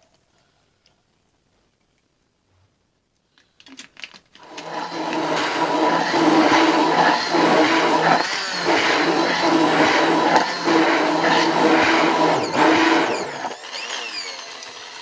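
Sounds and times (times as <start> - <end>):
hand blender motor humming: 4.4 - 15.0.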